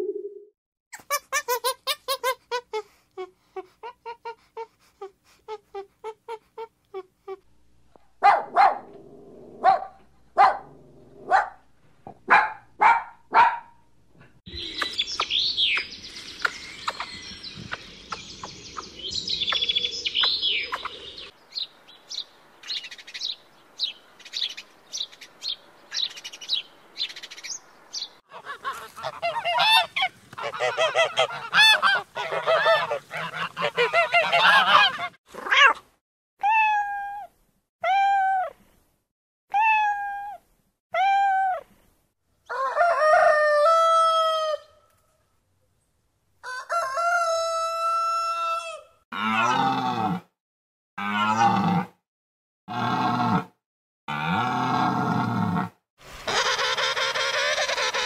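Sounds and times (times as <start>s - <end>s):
birds chirping: 14.5s - 35.1s.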